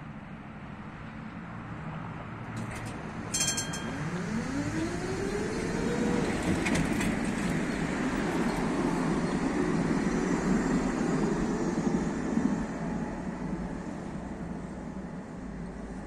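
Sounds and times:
tram motor whine: 2.5s - 15.8s
tram wheel and running noise: 2.5s - 16.0s
brief high tone: 3.3s - 4.6s.

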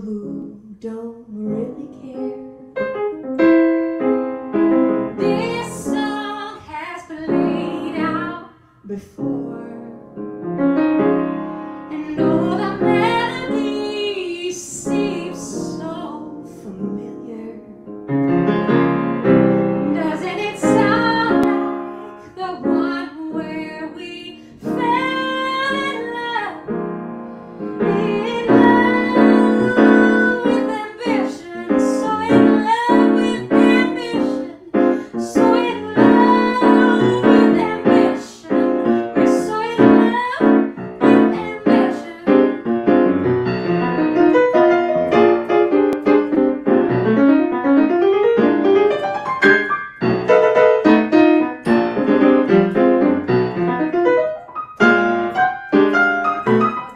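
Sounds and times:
woman singing: 0.0s - 2.6s, 5.2s - 10.1s, 11.9s - 17.9s, 19.8s - 26.7s, 27.8s - 42.7s
grand piano playing: 1.4s - 8.6s, 9.2s - 56.9s.

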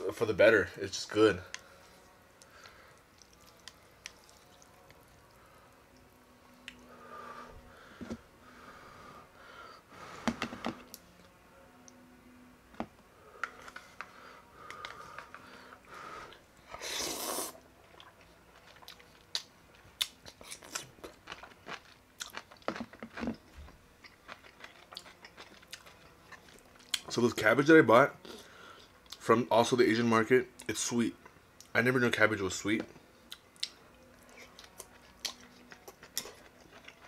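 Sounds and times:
chewing noodles: 1.5s - 5.5s, 16.3s - 27.1s, 33.3s - 37.0s
loud noodle slurp: 16.7s - 17.6s.

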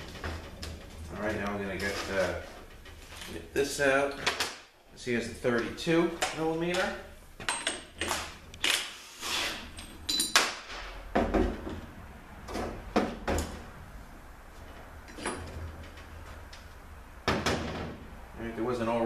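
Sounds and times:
metal tools clanking: 9.7s - 10.4s.

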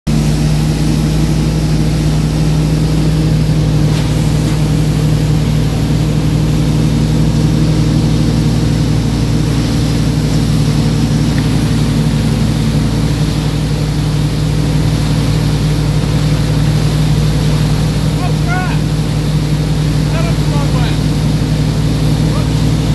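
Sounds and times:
churning wake water: 0.1s - 22.9s
motorboat engine running: 0.1s - 22.9s.

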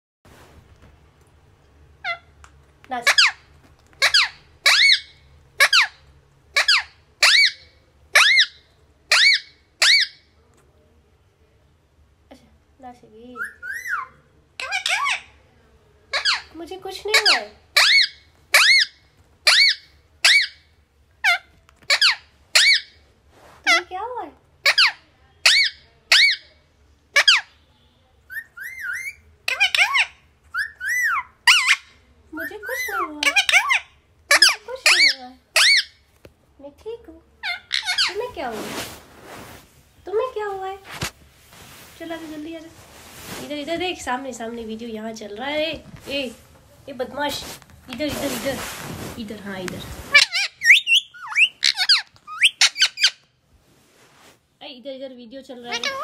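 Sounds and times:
parakeet squawking: 2.0s - 2.4s, 3.0s - 10.2s, 13.3s - 15.4s, 16.1s - 23.0s, 24.6s - 26.5s, 27.1s - 27.6s, 28.3s - 36.0s, 37.4s - 38.8s, 50.0s - 53.3s, 55.6s - 56.0s.

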